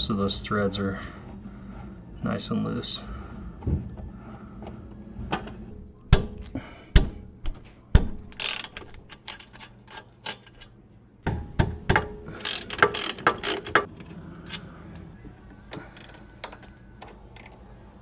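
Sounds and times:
ratchet clicking: 8.3 - 10.7, 12.4 - 13.9.

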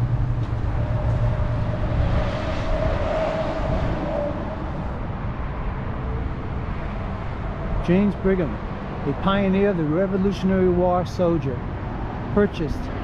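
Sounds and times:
motor vehicle passing by: 0.0 - 9.2.

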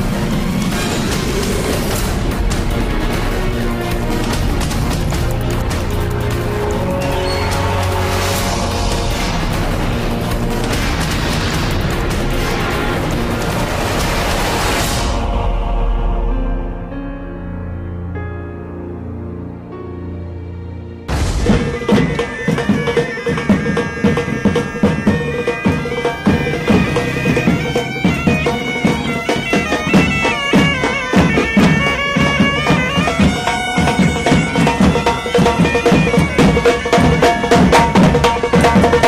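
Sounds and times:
side drums beating: 0.0 - 14.6, 21.1 - 39.0
bagpipes playing over drone: 21.5 - 39.0.

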